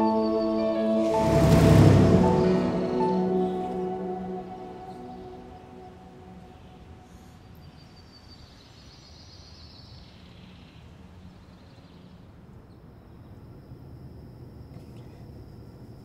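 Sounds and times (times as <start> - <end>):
low street rumble: 0.0 - 7.8.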